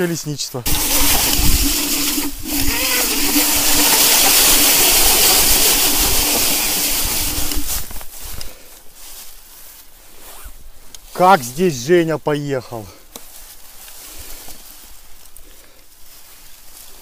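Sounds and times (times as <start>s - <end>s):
electric motor hum: 0.7s - 7.9s
wind rush on microphone: 0.7s - 8.4s.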